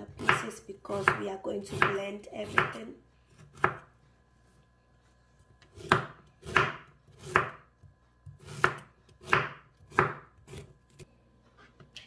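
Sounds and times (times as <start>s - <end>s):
knife chopping on wooden board: 0.0s - 3.9s, 5.6s - 11.0s.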